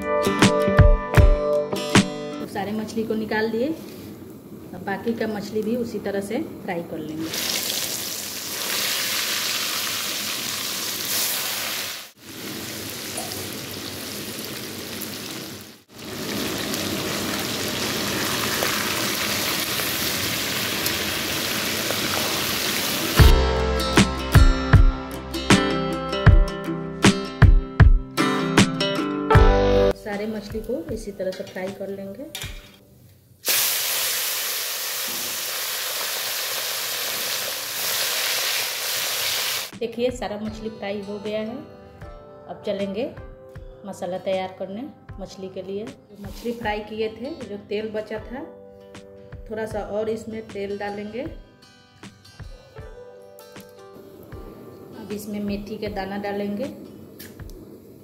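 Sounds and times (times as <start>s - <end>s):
acoustic guitar music: 0.0s - 2.5s, 23.2s - 32.9s, 46.2s - 57.5s
fish sizzling in hot oil: 7.3s - 23.3s, 33.4s - 39.7s.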